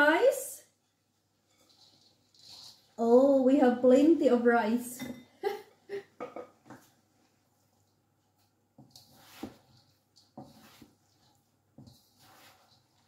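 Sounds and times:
spatula scraping wok: 0.9s - 3.7s, 8.8s - 13.0s.

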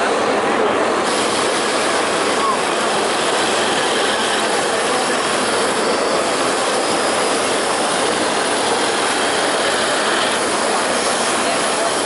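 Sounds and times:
sewing machine running: 7.0s - 11.4s.

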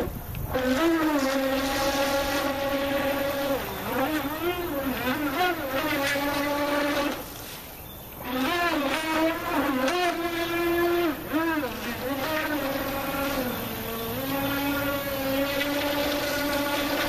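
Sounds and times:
electric boat motor whining: 0.0s - 17.0s.

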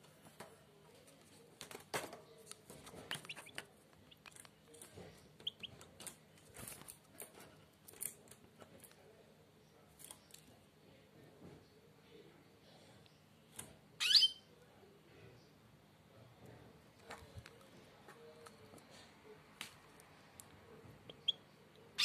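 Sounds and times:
nestlings cheeping: 3.1s - 4.4s.

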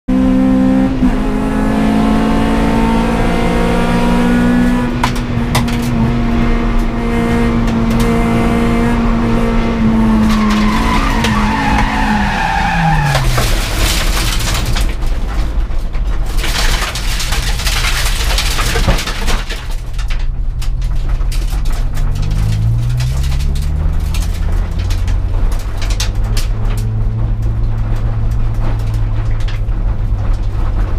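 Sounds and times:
race car engine revving: 0.1s - 14.4s, 21.5s - 30.9s
tyres skidding: 1.2s - 30.9s.

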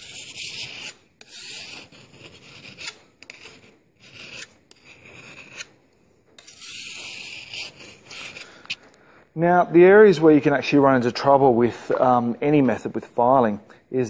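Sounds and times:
file rasping on machete edge: 0.0s - 5.7s, 6.4s - 8.5s.

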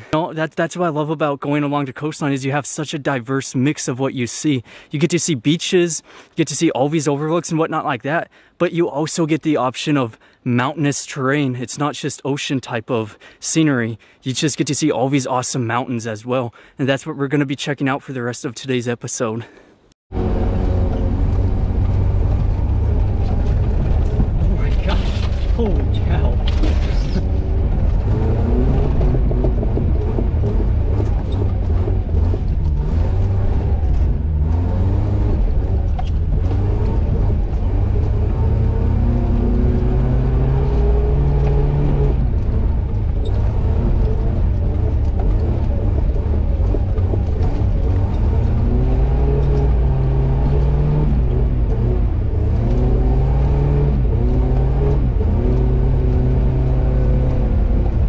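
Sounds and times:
vehicle engine pulling hard: 20.1s - 58.0s.

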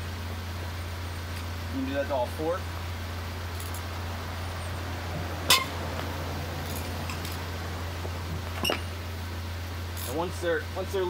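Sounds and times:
low hum: 2.6s - 10.1s
wrench clinking on lug nuts: 3.5s - 3.9s.

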